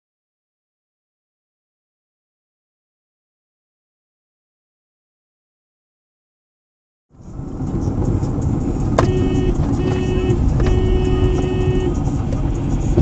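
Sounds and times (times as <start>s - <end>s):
car engine and tyre noise: 7.1s - 13.0s
steady tone: 9.0s - 12.8s.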